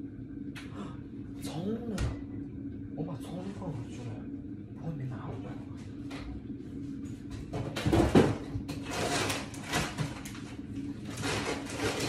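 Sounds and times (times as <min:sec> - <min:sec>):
rustling scraping and knocking: 0:07.4 - 0:12.0.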